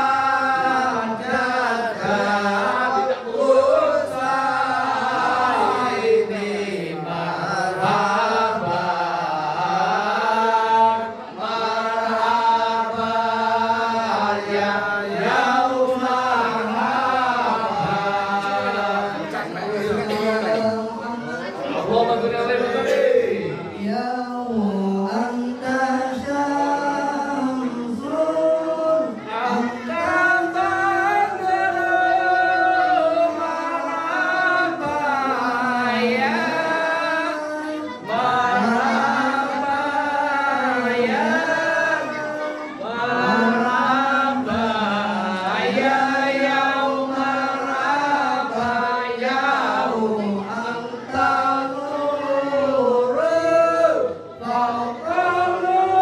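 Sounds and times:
men chanting a devotional song: 0:00.0 - 0:56.0.

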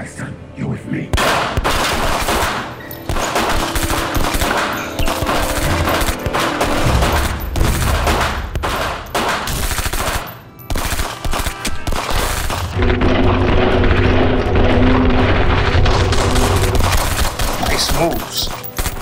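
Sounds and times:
rapid handgun gunfire: 0:01.2 - 0:12.7, 0:16.6 - 0:18.2.

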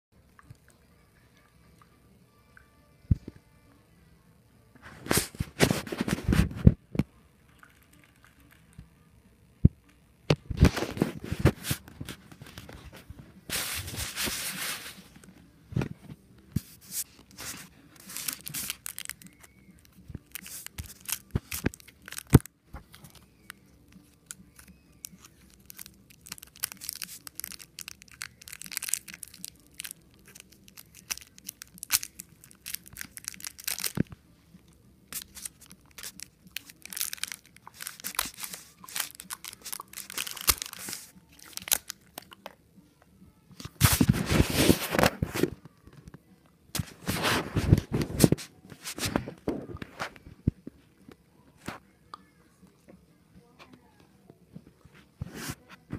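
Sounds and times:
candy wrapper crinkling: 0:17.3 - 0:34.2, 0:35.1 - 0:42.6.

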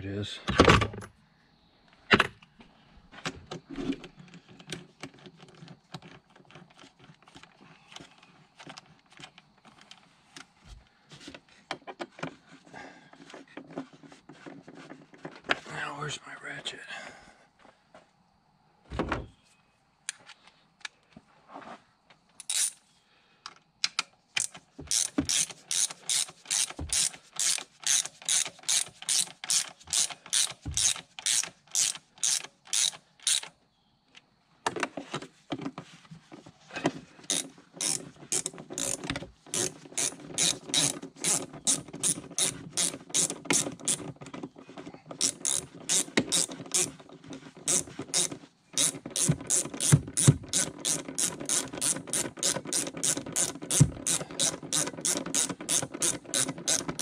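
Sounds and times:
ratchet wrench clicking: 0:22.4 - 0:22.8, 0:24.4 - 0:33.5, 0:37.3 - 0:44.0, 0:45.2 - 0:47.0, 0:47.7 - 0:57.0.

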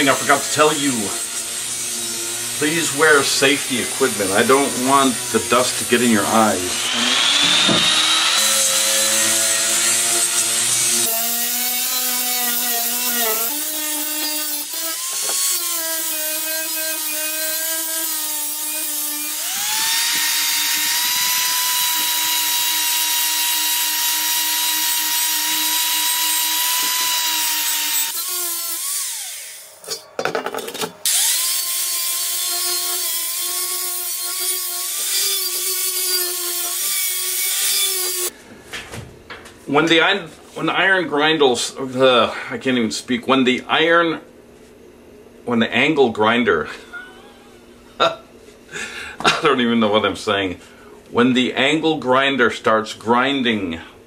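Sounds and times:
angle grinder grinding metal: 0:00.0 - 0:38.3.

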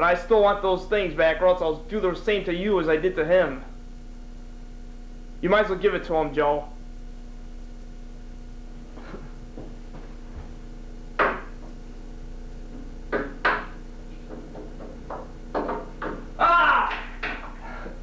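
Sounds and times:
electrical hum: 0:00.0 - 0:18.0
sharp knocks and taps: 0:11.2 - 0:11.8, 0:12.7 - 0:16.3, 0:16.9 - 0:17.6.

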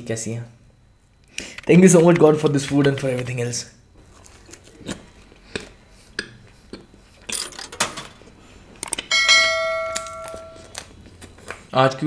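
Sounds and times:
bell chime notification ding: 0:09.1 - 0:10.7.

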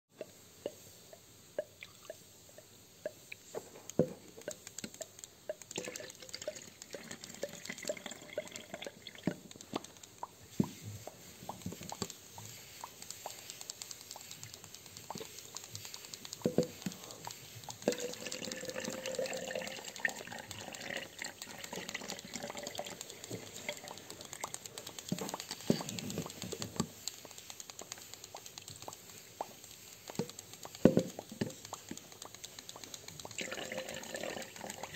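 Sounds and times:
water drips and plinks: 0:01.6 - 0:10.8, 0:16.4 - 0:26.9, 0:28.7 - 0:34.9
liquid pouring and trickling: 0:05.6 - 0:09.6, 0:17.8 - 0:26.9, 0:33.1 - 0:34.9.

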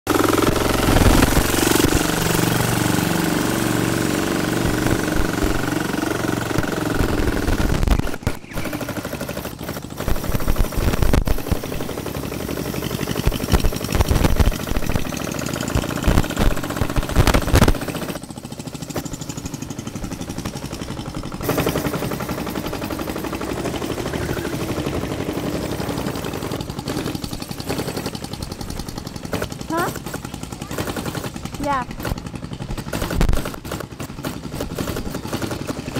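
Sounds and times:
go-kart motor rattling: 0:00.0 - 0:35.9
pitched drone: 0:00.1 - 0:28.2.

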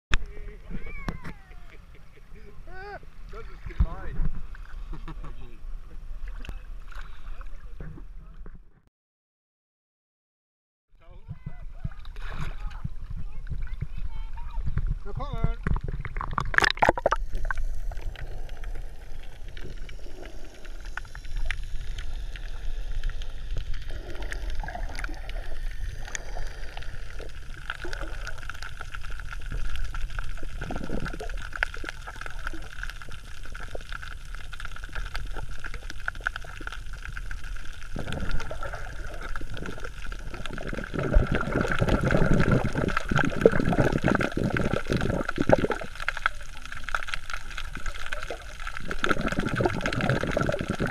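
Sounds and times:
water sloshing and gurgling: 0:02.3 - 0:08.6, 0:11.3 - 0:50.9
low underwater rumble: 0:11.0 - 0:50.9
churning water: 0:11.3 - 0:20.8, 0:23.8 - 0:50.9
water splash: 0:15.6 - 0:50.9.

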